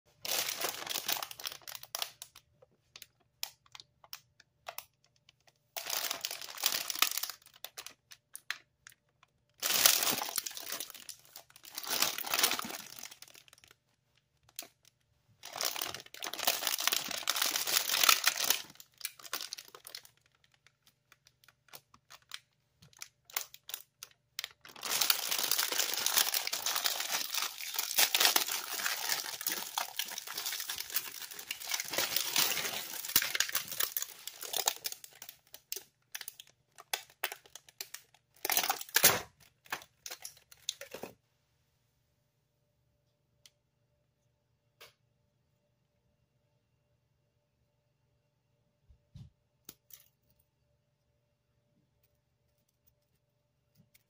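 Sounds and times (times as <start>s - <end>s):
plastic packaging crinkling: 0.1s - 41.1s.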